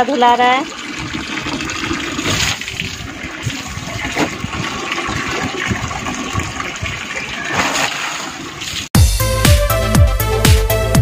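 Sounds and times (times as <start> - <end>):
tap water running into bucket: 0.0 - 8.8
water splashing from cloth: 1.0 - 8.9.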